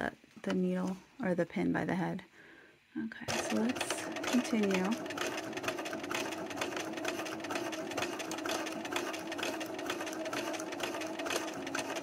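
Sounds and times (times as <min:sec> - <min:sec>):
sewing machine stitching: 0:03.3 - 0:12.0.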